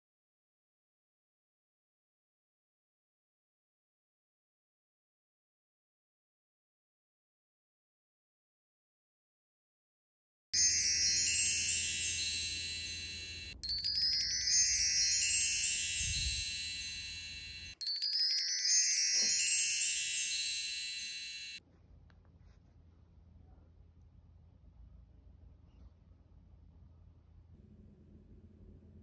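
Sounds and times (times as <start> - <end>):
glittering sparkle chime: 10.6 - 21.6.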